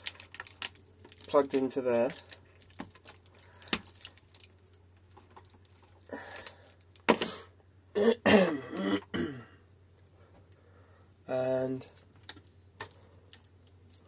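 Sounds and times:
man clearing throat and coughing: 7.9 - 9.6.

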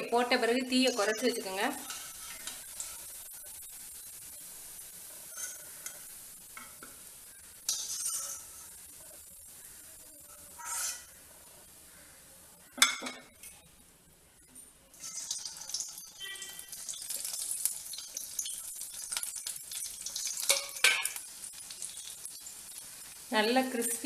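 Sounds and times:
hot oil sizzling: 0.0 - 13.8, 14.9 - 24.0
metal clinking on steel pan: 20.2 - 21.2.

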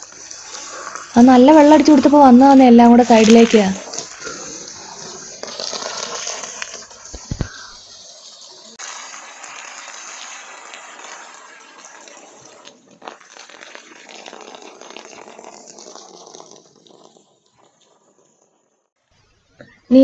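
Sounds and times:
water gushing into pond: 0.0 - 17.5.

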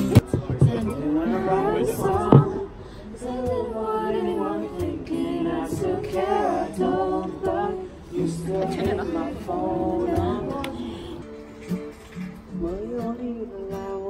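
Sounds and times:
people singing unaccompanied: 0.0 - 14.0.

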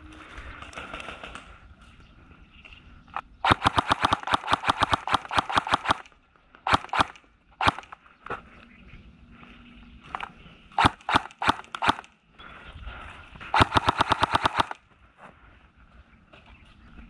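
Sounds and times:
airsoft gun firing: 3.4 - 8.0, 10.1 - 12.1, 13.5 - 14.8.

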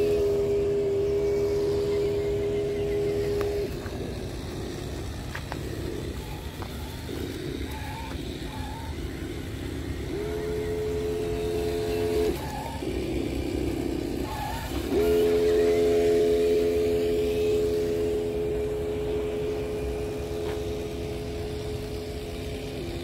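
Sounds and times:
electric motor and gears whining: 0.0 - 23.0.

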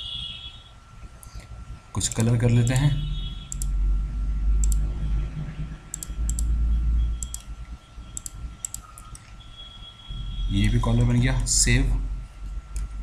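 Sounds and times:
low steady rumble: 1.0 - 8.8, 10.2 - 13.0
computer mouse clicking: 1.2 - 2.3, 3.5 - 3.8, 4.6 - 4.9, 5.9 - 6.5, 7.2 - 7.5, 8.2 - 9.4, 12.7 - 13.0.

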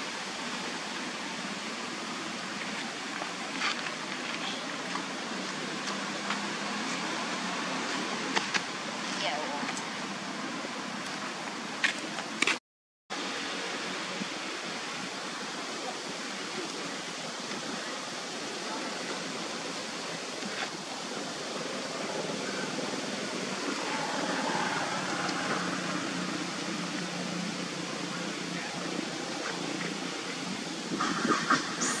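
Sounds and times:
rushing hiss: 13.3 - 32.0.

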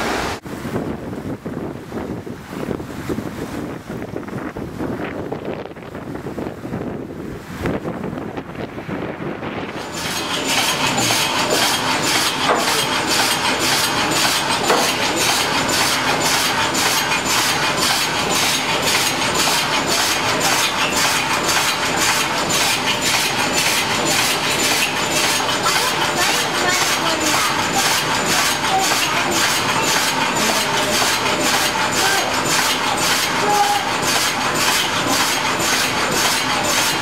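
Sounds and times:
sawmill machinery clattering: 9.7 - 37.0.

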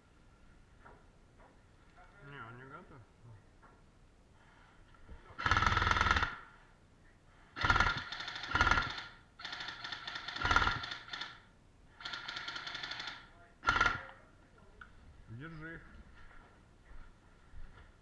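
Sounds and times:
airsoft rifle automatic fire: 5.4 - 6.5, 7.6 - 14.2.

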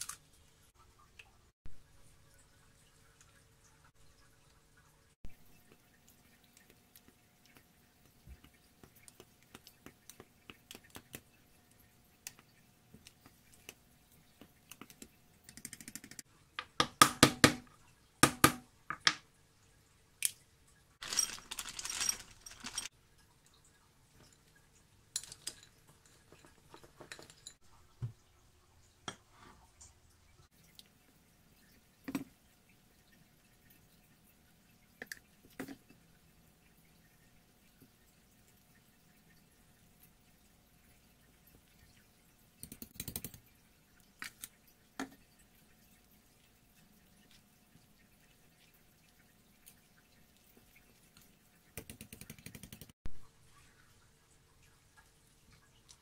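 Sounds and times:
crunchy rattle of shells: 21.0 - 22.9.

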